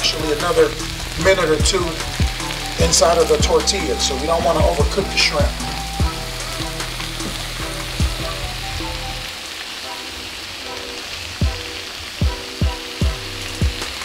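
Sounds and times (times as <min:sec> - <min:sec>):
booming bass kicks: 0:00.0 - 0:09.3, 0:11.4 - 0:14.0
background music: 0:00.0 - 0:14.0
food sizzling in skillet: 0:00.0 - 0:14.0.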